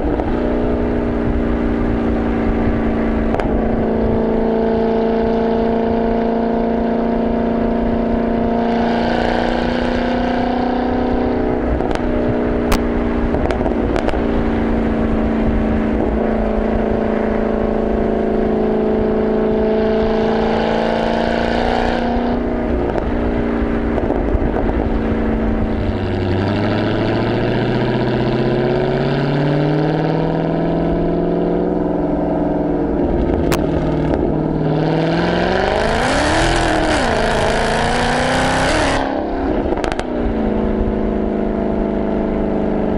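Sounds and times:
exhaust cracks: 0:00.0 - 0:03.9, 0:11.5 - 0:18.1, 0:22.4 - 0:29.4, 0:31.6 - 0:41.7
loud car exhaust note: 0:00.0 - 0:42.9.

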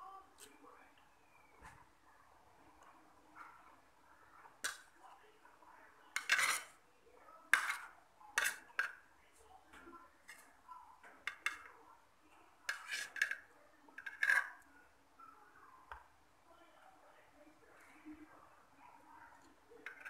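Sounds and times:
metal spoon scraping a plate: 0:06.2 - 0:06.8, 0:07.5 - 0:09.0, 0:12.7 - 0:14.6.

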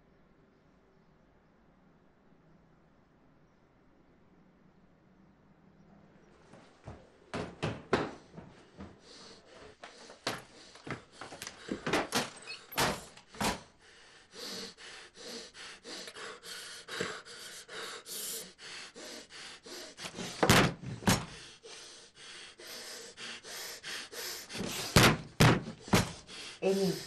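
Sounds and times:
heavy knocks: 0:07.4 - 0:09.0, 0:20.2 - 0:21.4, 0:24.6 - 0:26.3
man sobbing with ragged gasps: 0:25.8 - 0:27.0.

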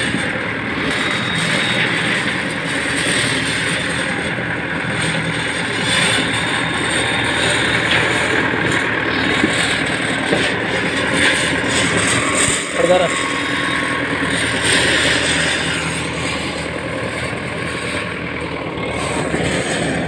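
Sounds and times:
tractor diesel engine under load: 0:00.0 - 0:20.0.

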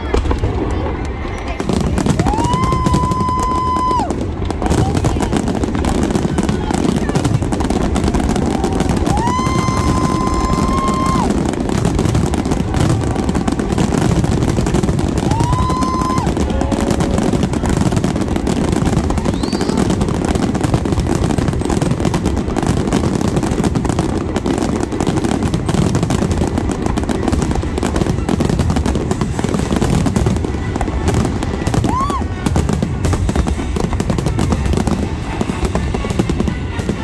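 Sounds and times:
fireworks barrage crackling: 0:00.0 - 0:37.0
firework whistle: 0:02.1 - 0:04.9, 0:07.9 - 0:21.8, 0:26.5 - 0:37.0.

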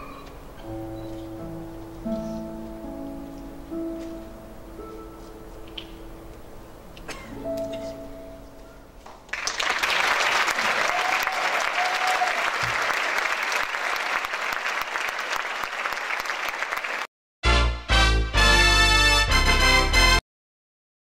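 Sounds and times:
audience applause: 0:09.3 - 0:17.1
theme music: 0:17.4 - 0:20.2.

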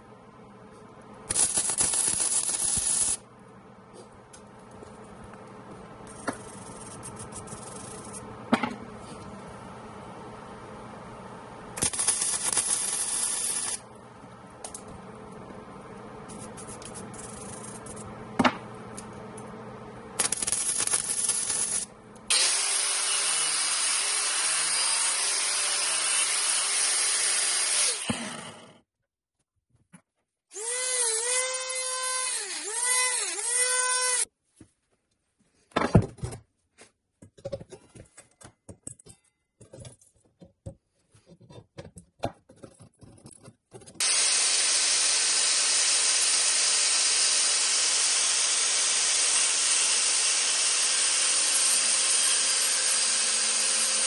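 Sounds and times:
welder crackling hiss: 0:01.3 - 0:03.2, 0:11.8 - 0:13.8, 0:20.2 - 0:23.0
angle grinder grinding steel: 0:20.2 - 0:28.7.

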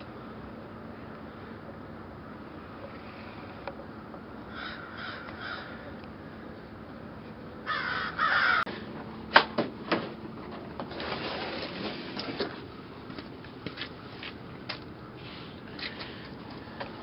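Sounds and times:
crow cawing: 0:04.5 - 0:06.4, 0:07.6 - 0:08.7.

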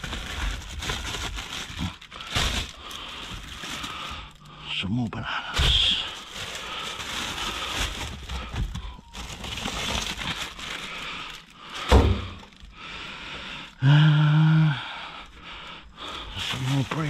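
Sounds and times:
plastic bags rustling: 0:00.0 - 0:04.8, 0:05.5 - 0:13.8, 0:16.0 - 0:17.0
sharp thump: 0:11.9 - 0:12.4.

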